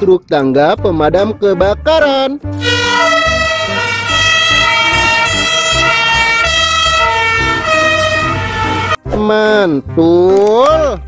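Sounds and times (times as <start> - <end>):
fire engine two-tone siren: 2.6 - 9.0.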